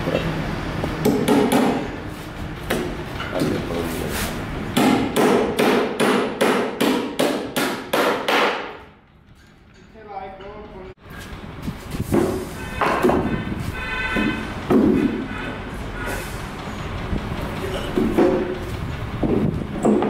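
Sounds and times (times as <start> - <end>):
hammer blows on timber: 12.1 - 16.2.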